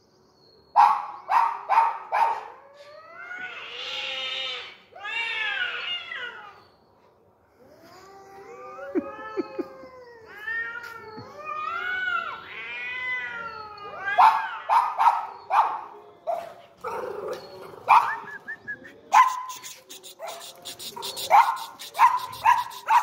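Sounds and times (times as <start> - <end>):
cats caterwauling: 2.4 - 6.6, 7.5 - 15.6, 19.2 - 23.0.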